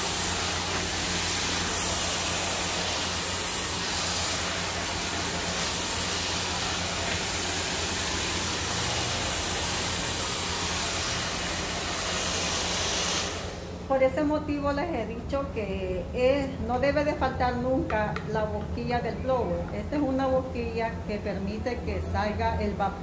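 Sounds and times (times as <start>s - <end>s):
hair dryer blowing air: 0.0s - 14.0s.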